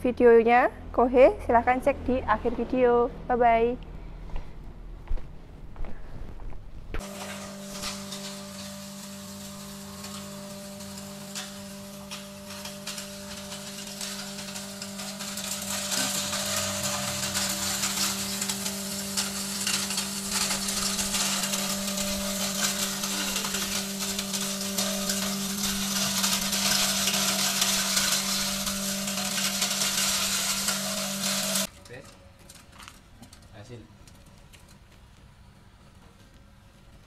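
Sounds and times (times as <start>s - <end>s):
crackling hiss of grinding: 7.0s - 31.7s
hammer mill motor humming: 7.0s - 32.2s.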